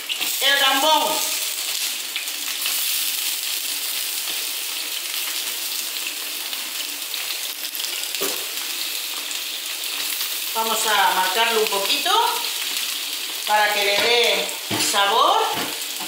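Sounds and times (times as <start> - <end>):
prawns sizzling in hot oil: 0.0 - 16.0.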